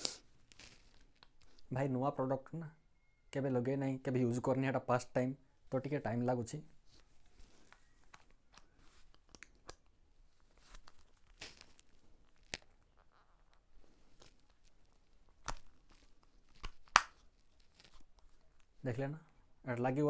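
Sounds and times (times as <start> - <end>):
faint plastic rustling: 0.0 - 1.8, 6.7 - 19.5.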